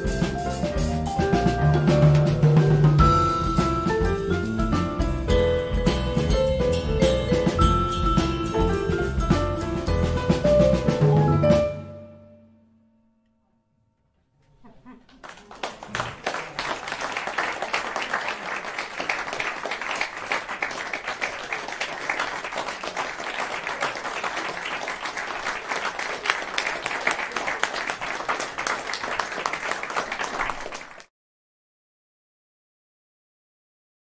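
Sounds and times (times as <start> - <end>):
audience applauding: 15.0 - 31.1.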